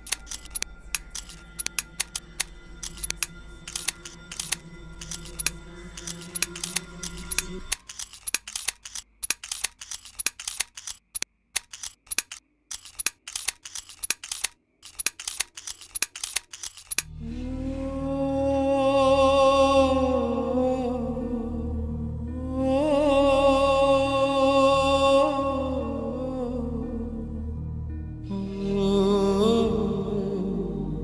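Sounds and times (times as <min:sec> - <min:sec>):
low steady drone: 0:00.0 - 0:07.8, 0:17.0 - 0:31.0
typewriter key clicks: 0:00.0 - 0:17.1.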